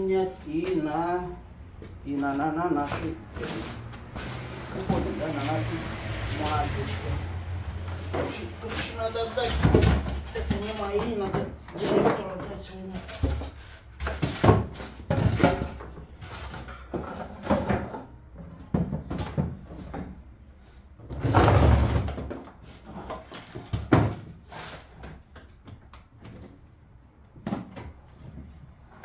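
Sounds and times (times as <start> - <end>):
objects knocked on concrete floor: 9.4 - 20.2
foam boards scraping and rustling: 21.1 - 25.2.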